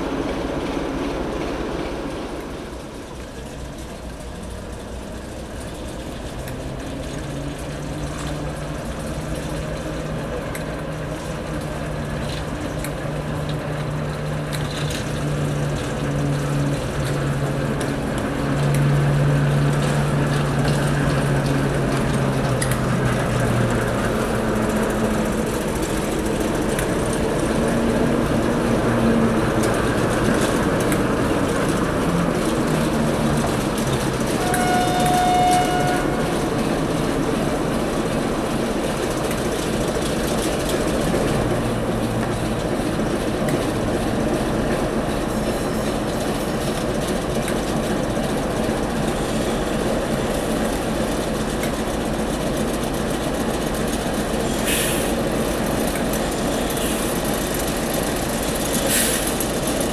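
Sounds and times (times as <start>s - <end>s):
diesel train engine running: 0.0s - 59.9s
train horn blast: 34.2s - 37.0s.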